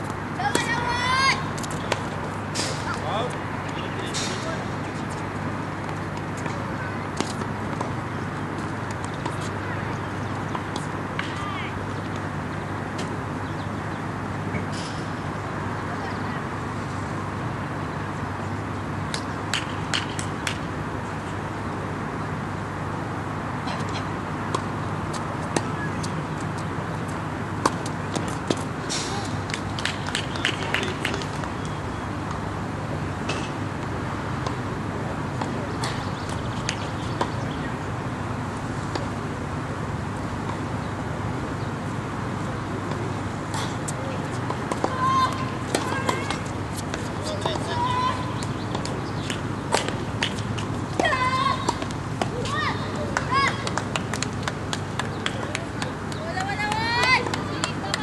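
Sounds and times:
tennis ball bouncing on hard court: 0.0s - 1.0s, 5.8s - 8.0s, 27.6s - 28.7s, 42.9s - 54.8s
traffic hum: 0.0s - 58.0s.

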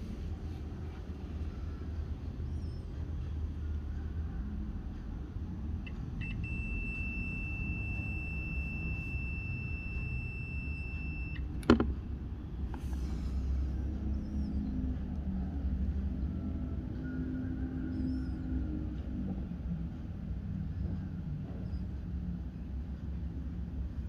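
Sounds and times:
continuity tester high beep: 5.9s - 11.5s.

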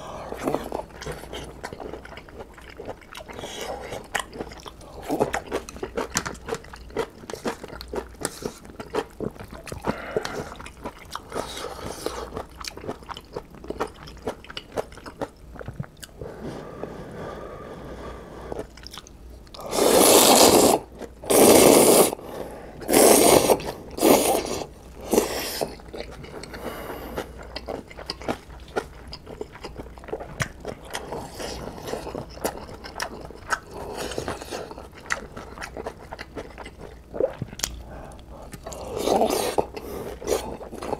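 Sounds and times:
person chewing noodles: 0.0s - 40.9s
slurping noodles: 19.6s - 25.8s, 38.6s - 40.9s.

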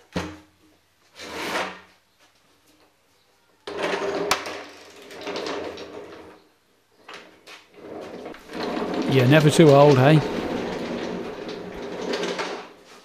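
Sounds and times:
casters rumbling on concrete: 7.8s - 12.9s
frame thumping on concrete: 8.0s - 13.0s.

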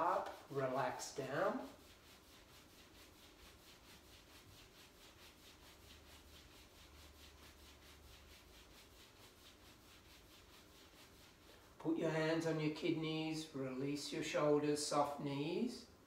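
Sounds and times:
hands rubbing over t-shirt: 0.0s - 11.9s.

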